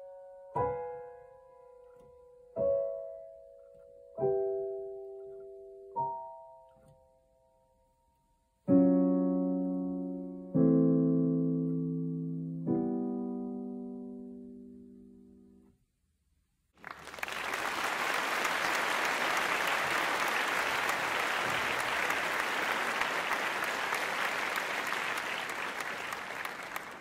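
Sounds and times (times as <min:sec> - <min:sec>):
applause: 0:16.8 - 0:27.0.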